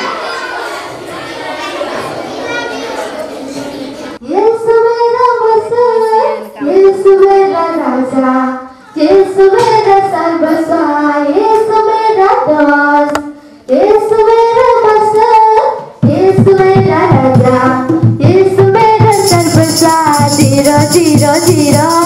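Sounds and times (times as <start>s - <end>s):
children singing: 0.0s - 4.2s, 18.8s - 22.0s.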